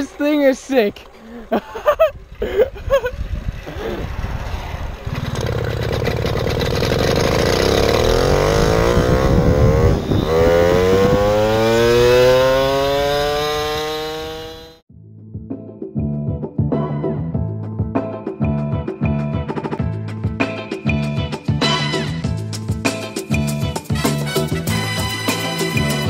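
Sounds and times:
moped engine running: 2.2 - 14.8.

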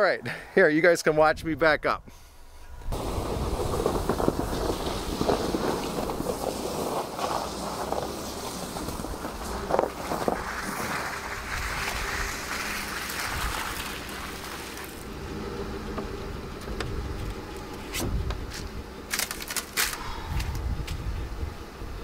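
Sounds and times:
pickup engine rumbling: 2.5 - 22.0
hiss: 3.0 - 15.0.

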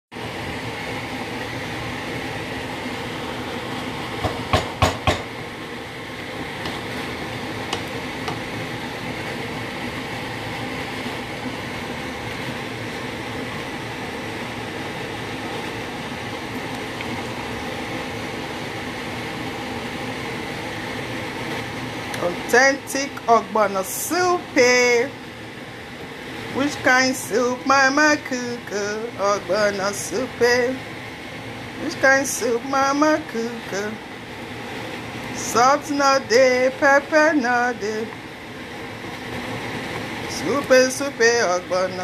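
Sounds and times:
soup boiling in a pot: 0.1 - 23.4, 24.0 - 42.0
spoon knocking against pot: 4.2 - 5.3.

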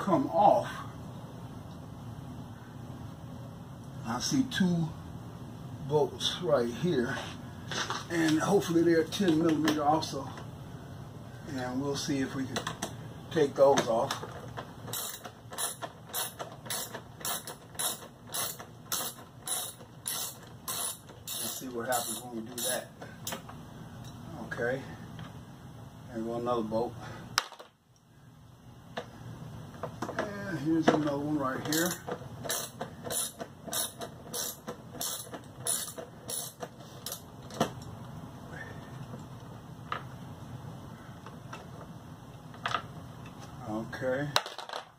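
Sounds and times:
ratchet wrench clicking: 14.9 - 23.4, 31.7 - 37.3.

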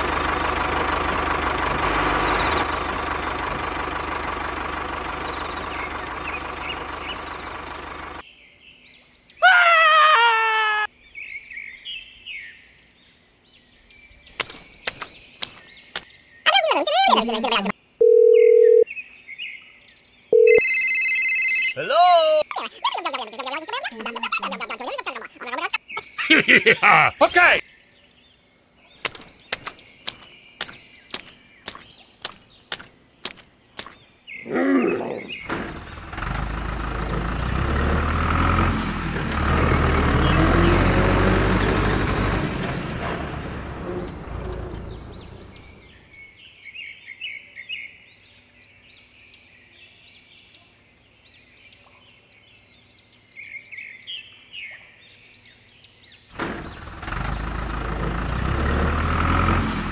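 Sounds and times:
engine-like rumble: 0.0 - 8.2, 35.2 - 46.5, 56.3 - 59.9
birds chirping: 0.0 - 59.9
sharp clicks: 14.4 - 16.1, 29.0 - 34.0.

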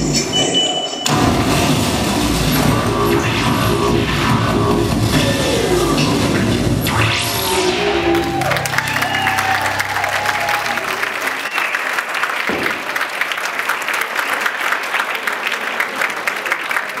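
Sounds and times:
dance music bass: 0.0 - 11.2
high whoops: 7.8 - 11.7
audience clapping: 8.0 - 17.0.

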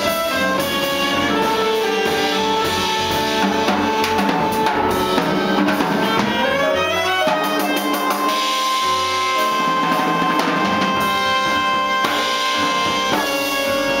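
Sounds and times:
upright bass: 0.0 - 7.3
drums and cymbals: 0.0 - 14.0
electric keyboard: 0.0 - 14.0
saxophone: 0.0 - 14.0.

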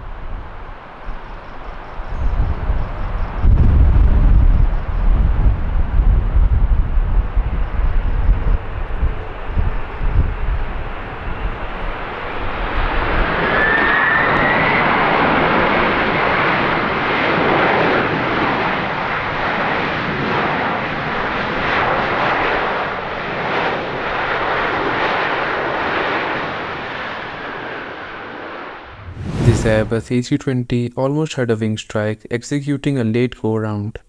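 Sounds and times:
jet engines roaring: 0.0 - 30.2
faint rising whine: 28.5 - 30.2.

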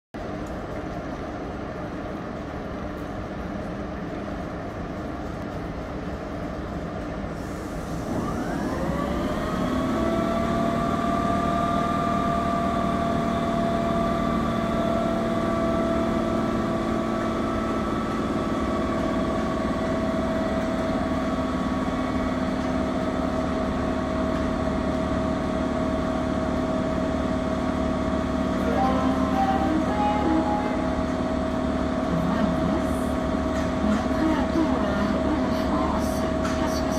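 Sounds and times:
locomotive hum: 0.2 - 36.9
air compressor whine: 7.4 - 33.5.

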